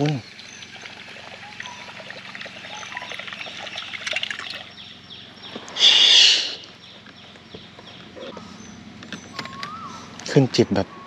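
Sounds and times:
water trickling: 0.0s - 5.2s.

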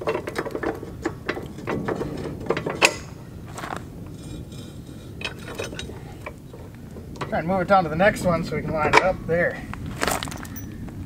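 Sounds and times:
metal bolt clinking and knocking: 0.0s - 7.4s, 10.1s - 10.7s.

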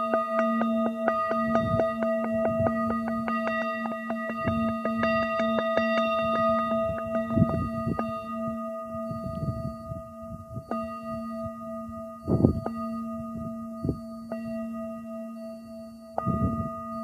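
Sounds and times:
singing bowl ringing: 0.0s - 17.0s
wind buffeting microphone: 1.4s - 3.1s, 6.7s - 14.2s, 16.2s - 16.9s.

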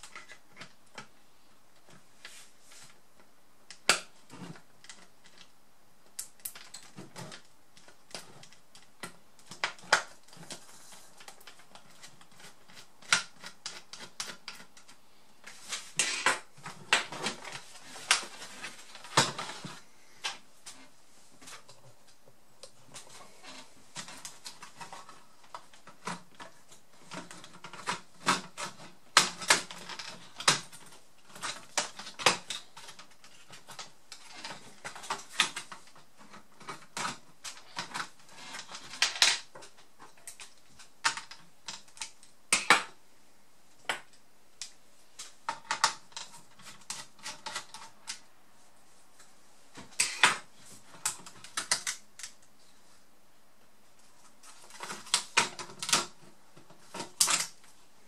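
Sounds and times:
plastic snaps: 36.6s - 43.0s.

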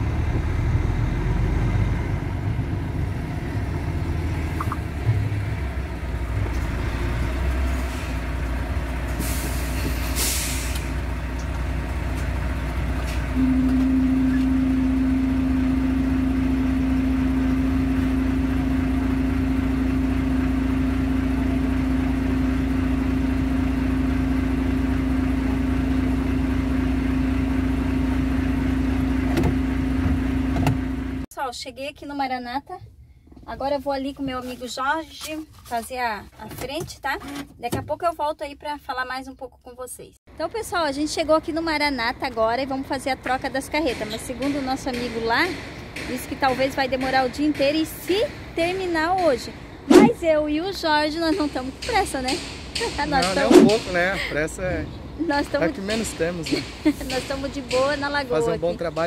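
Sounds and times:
diesel truck engine running: 0.0s - 31.3s, 40.3s - 59.0s
air brake hiss: 9.2s - 11.0s
steady low drone: 12.0s - 28.3s.

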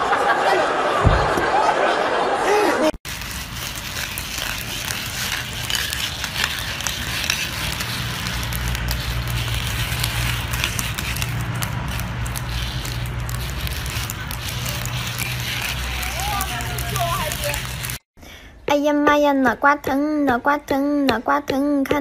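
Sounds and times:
roller skates rolling on stone: 3.0s - 18.0s
wheels clicking and clattering: 3.1s - 18.0s.

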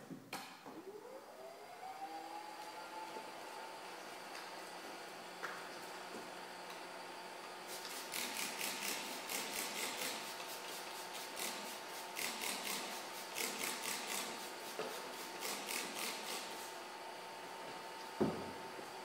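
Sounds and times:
spray bottle hissing: 7.7s - 16.6s.

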